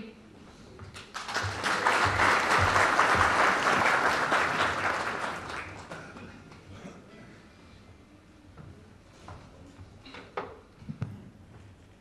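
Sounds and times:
audience applauding: 1.0 - 6.2.

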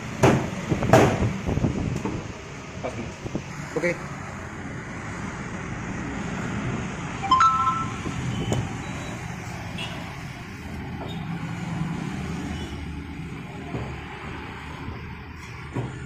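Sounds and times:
road traffic rumble: 0.0 - 16.0
two-note tone: 7.2 - 8.1.

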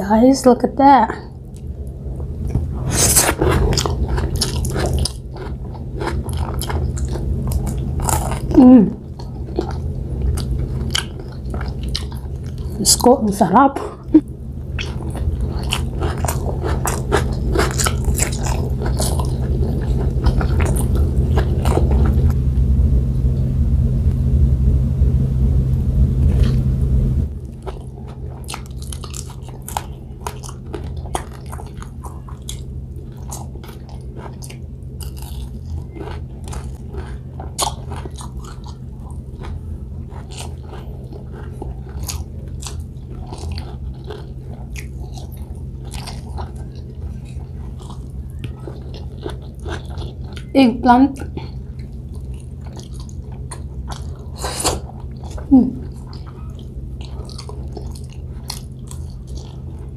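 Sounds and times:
loud low hum: 0.0 - 59.9
chewing and mouth clicks: 2.4 - 12.8, 14.1 - 22.4, 27.4 - 59.9
crunchy bites: 14.7 - 22.4, 27.4 - 50.5.

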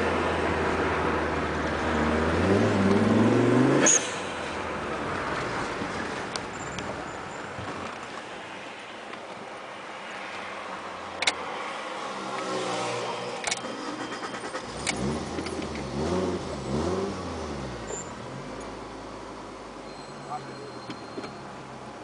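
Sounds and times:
car engine revving: 0.0 - 6.2, 12.2 - 19.3.

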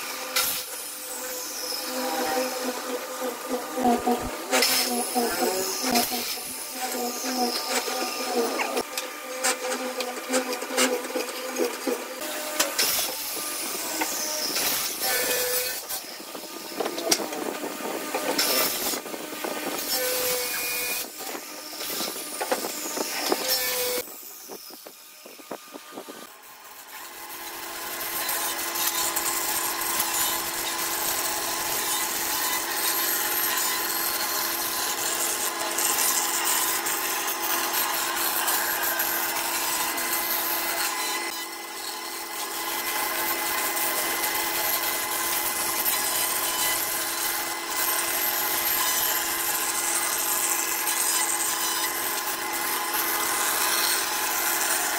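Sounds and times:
band saw cutting cardboard: 0.0 - 54.9.

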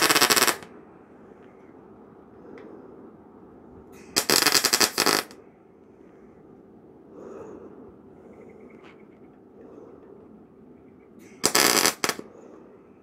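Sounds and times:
welding arc crackle: 0.0 - 0.7, 4.2 - 5.4, 11.4 - 12.2.

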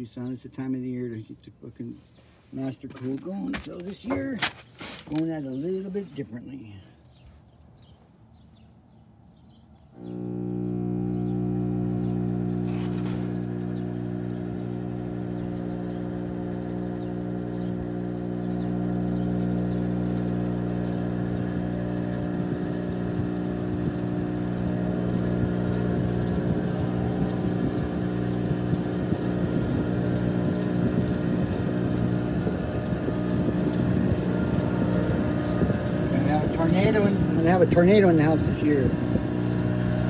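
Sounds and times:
cooler blower motor humming: 9.9 - 40.0.

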